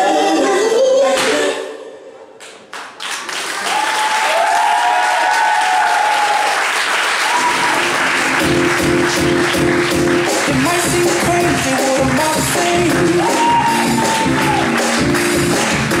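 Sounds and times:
audience applause: 2.7s - 16.0s
music with a beat: 8.4s - 16.0s.

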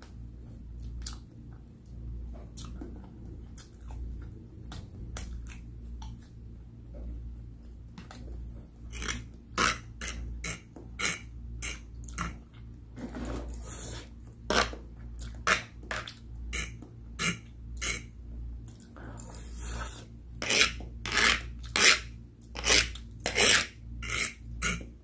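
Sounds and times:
chewing and mouth smacks: 0.8s - 6.4s.

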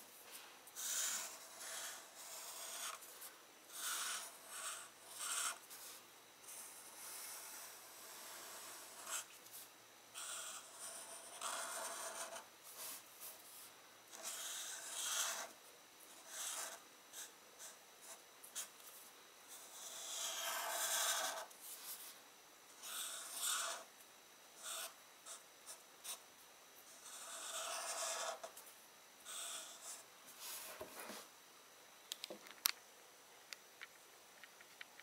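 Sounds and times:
marker drawing on paper: 0.8s - 3.0s, 3.7s - 9.3s, 10.2s - 13.4s, 14.1s - 15.5s, 16.1s - 18.8s, 19.5s - 22.2s, 22.8s - 23.9s, 24.6s - 26.2s, 26.9s - 28.5s.

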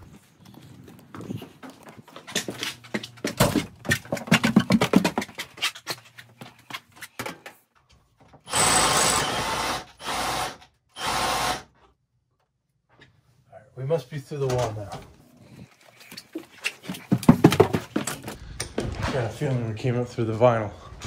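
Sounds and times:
rotary hammer drill bursts: 8.5s - 11.8s
irregular knocks and scraping: 14.4s - 21.0s.

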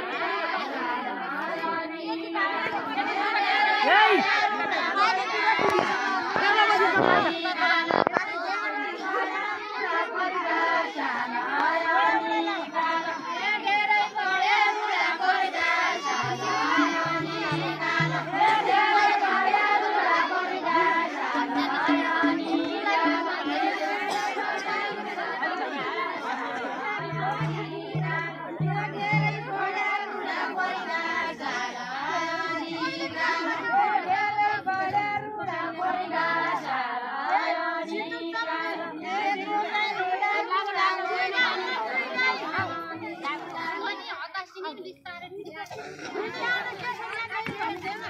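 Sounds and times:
women singing folk song together: 0.0s - 48.0s.

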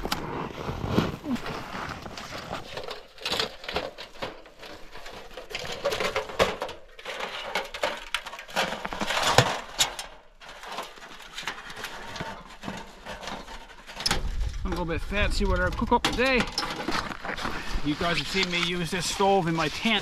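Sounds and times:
metal panels clinking and rattling: 2.7s - 14.6s, 15.4s - 17.1s.

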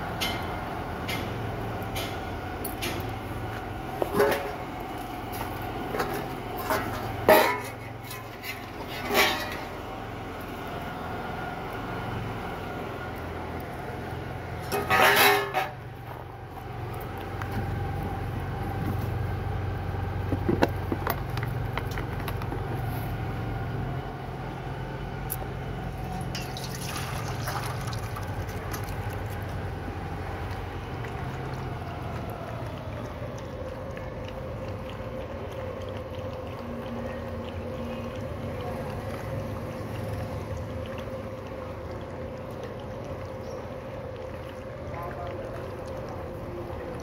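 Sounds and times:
puppies lapping: 25.3s - 47.0s
milk pouring into steel bowl: 25.9s - 47.0s.

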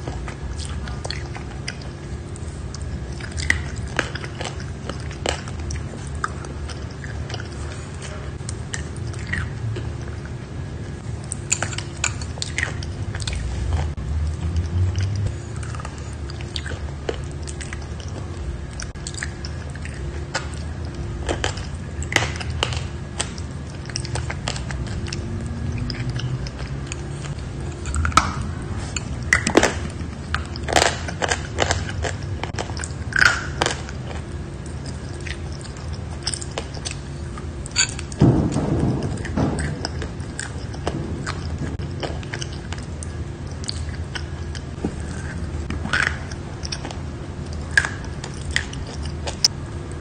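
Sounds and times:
low steady hum: 0.0s - 50.0s
chalk being chewed: 11.2s - 38.1s.

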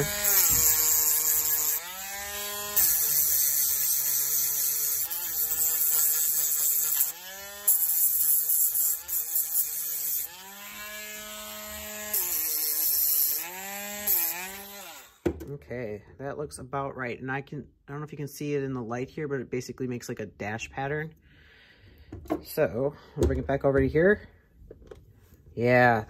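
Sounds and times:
rotary tool grinding wire: 0.0s - 15.2s.

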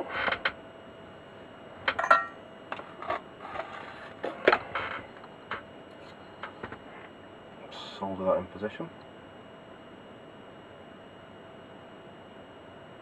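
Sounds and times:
ringing metal clink: 2.0s - 2.3s.

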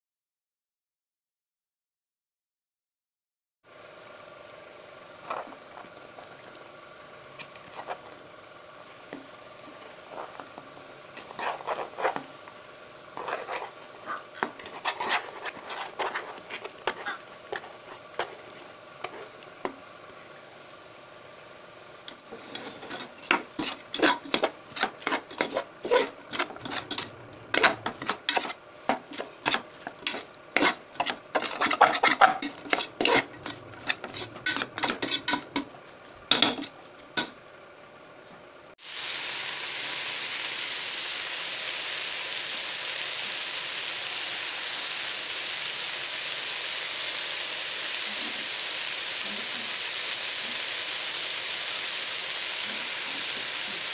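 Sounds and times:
food sizzling: 3.7s - 37.8s, 38.8s - 53.9s
spoon scraping pot: 10.0s - 12.3s, 13.2s - 19.4s, 22.1s - 37.3s.

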